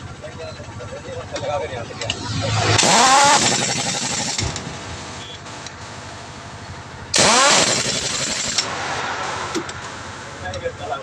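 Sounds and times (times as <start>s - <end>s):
pneumatic impact wrench: 2.0s - 4.8s, 7.1s - 8.8s.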